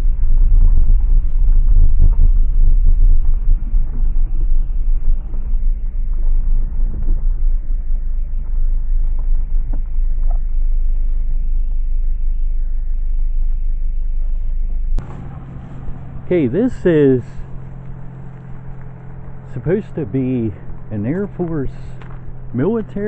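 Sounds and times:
vehicle engine and tyres rumbling: 14.3s - 23.0s.

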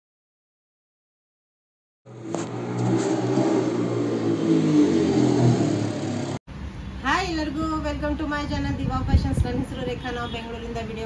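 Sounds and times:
vehicle engine revving: 2.1s - 6.4s.

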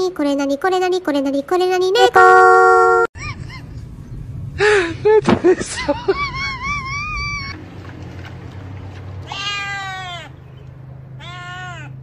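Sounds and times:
cat meowing: 9.3s - 10.3s, 11.2s - 11.9s.

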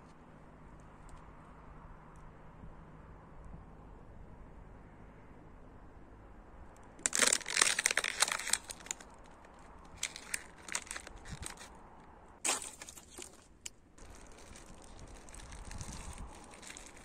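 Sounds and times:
plastic bottle crinkling: 7.0s - 11.7s, 12.4s - 17.0s.

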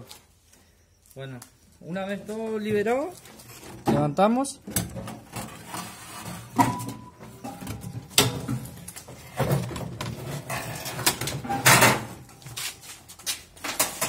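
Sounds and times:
metal and plastic clattering: 4.7s - 12.3s.

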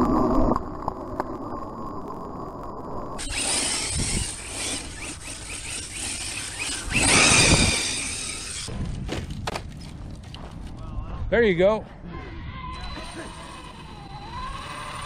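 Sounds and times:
electric motor whining: 3.2s - 8.7s, 12.8s - 15.0s
tyres spinning through dry grass: 3.2s - 10.8s.

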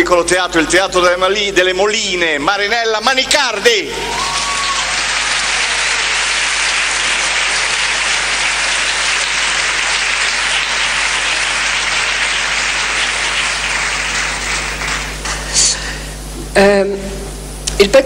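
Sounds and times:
audience applauding: 3.8s - 15.8s.

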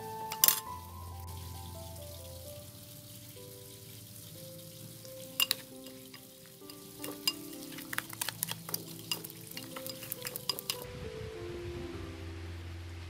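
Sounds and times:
soft background music: 0.0s - 13.0s
utensils clicking on ceramic bowl: 0.3s - 0.8s, 5.4s - 10.8s.

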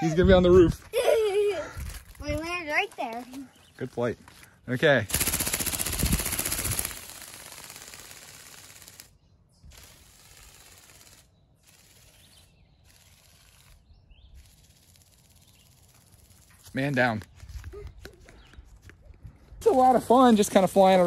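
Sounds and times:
toy ornithopter wings rattling buzz: 5.1s - 16.8s.

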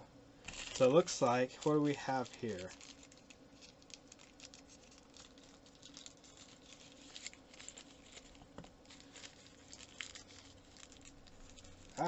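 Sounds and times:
low steady hum: 0.0s - 12.0s
plastic bag rustling and clicking: 0.4s - 12.0s.

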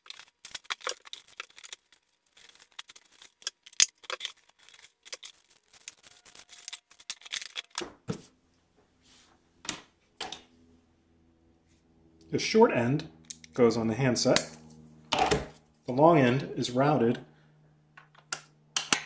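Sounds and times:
cardboard and paper rustling: 0.0s - 8.3s.

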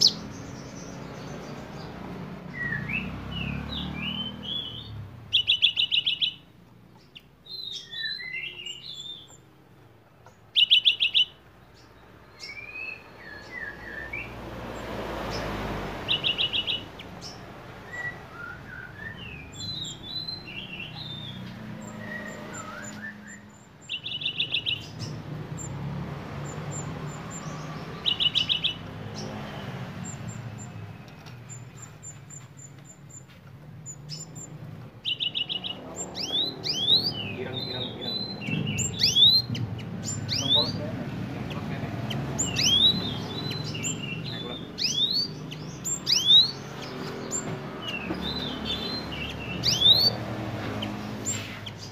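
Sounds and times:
bird trilling: 0.0s - 14.4s, 15.2s - 25.8s, 26.4s - 51.9s
bird chirps and whistles: 2.5s - 6.4s, 7.5s - 9.4s, 10.5s - 11.4s, 16.0s - 25.1s, 27.3s - 28.8s, 34.1s - 40.8s, 42.1s - 50.2s.

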